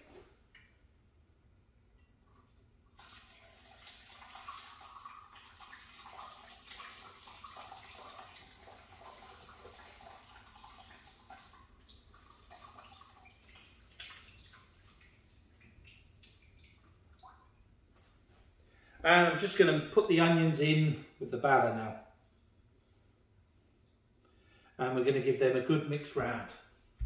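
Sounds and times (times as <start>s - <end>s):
water splashing into a sink: 2.1s - 17.7s.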